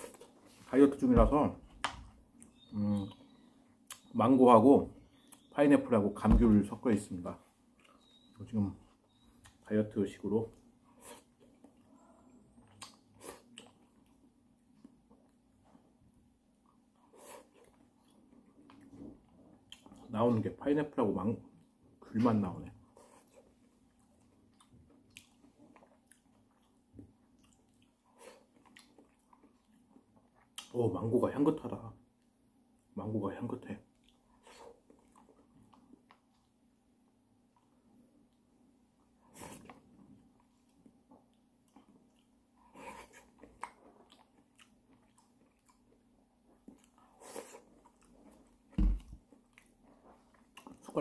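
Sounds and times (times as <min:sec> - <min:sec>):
wet chewing of fruit: 0:10.5 - 0:20.5, 0:22.9 - 0:30.8, 0:33.9 - 0:36.8, 0:37.4 - 0:51.0.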